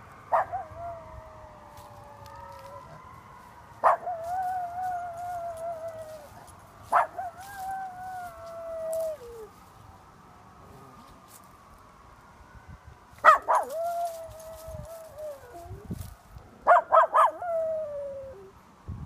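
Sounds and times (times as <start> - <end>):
dog howling: 0.3 - 3.1, 3.8 - 6.4, 7.0 - 9.5, 13.3 - 15.9
dog yelping: 3.8 - 4.3, 6.9 - 8.4, 13.2 - 15.6, 16.7 - 17.6.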